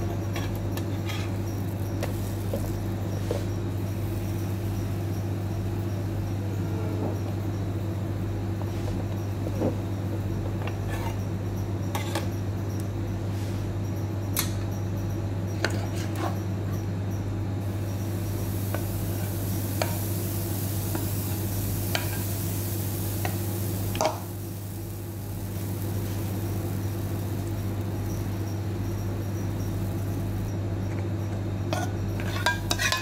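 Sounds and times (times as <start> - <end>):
batter sizzling on hot plate: 0.0 - 5.6, 17.6 - 31.0, 31.7 - 33.0
roti maker humming: 0.0 - 10.6, 16.8 - 33.0.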